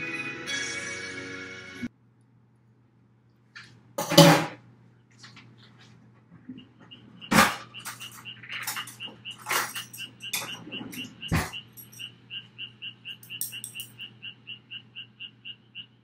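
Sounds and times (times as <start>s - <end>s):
faint high chirp: 6.5s - 16.0s
cutlery clicking in drawer: 7.3s - 12.0s, 13.2s - 13.9s.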